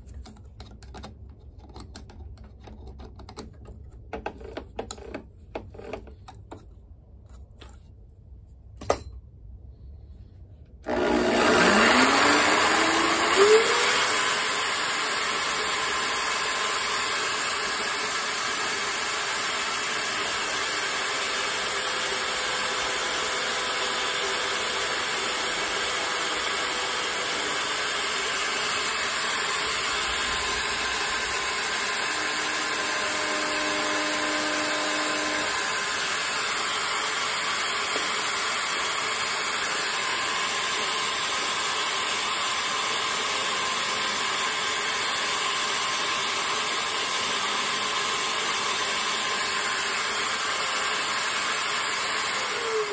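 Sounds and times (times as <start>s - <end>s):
small electric motor running: 10.9s - 52.9s.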